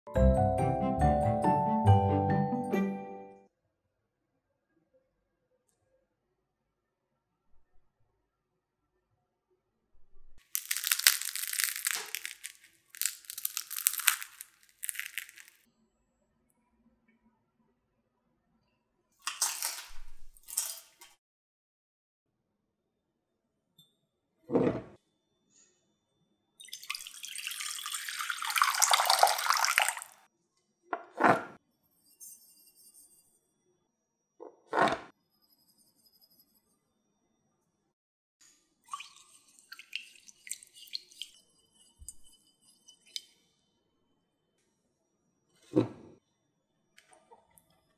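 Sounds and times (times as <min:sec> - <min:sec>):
bread crust crackling: 0:10.4 - 0:15.6, 0:19.3 - 0:20.9, 0:27.6 - 0:30.2
water pouring into glass bowl: 0:10.4 - 0:15.6, 0:26.6 - 0:30.2, 0:38.9 - 0:42.4.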